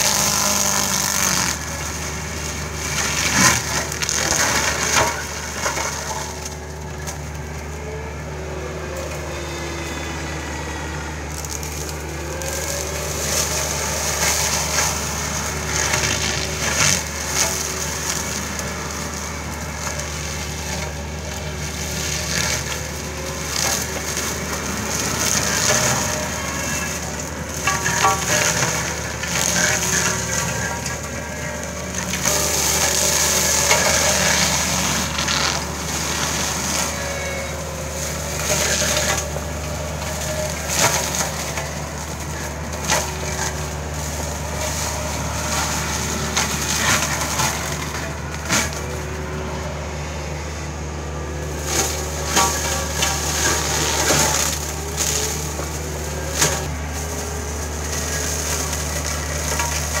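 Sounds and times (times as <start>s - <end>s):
wood cracking and snapping: 0.0s - 7.7s, 11.3s - 48.9s
diesel engine running under load: 0.0s - 60.0s
mulcher shredding brush: 0.0s - 60.0s.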